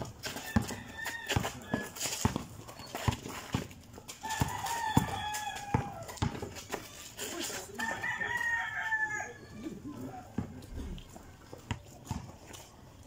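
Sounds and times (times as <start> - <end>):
basketball dribbled on concrete: 0.0 - 6.9, 10.3 - 10.6, 11.6 - 12.7
rooster crowing: 0.4 - 2.0, 4.2 - 6.4, 7.8 - 9.6.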